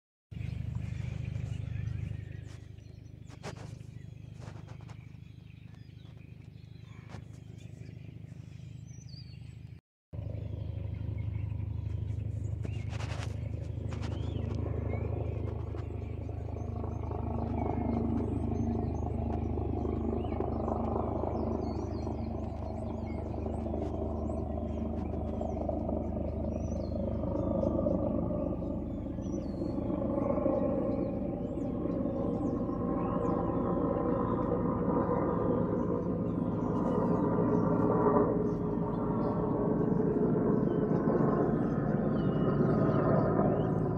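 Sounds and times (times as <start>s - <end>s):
helicopter rotor and engine rumble: 0.3s - 43.9s.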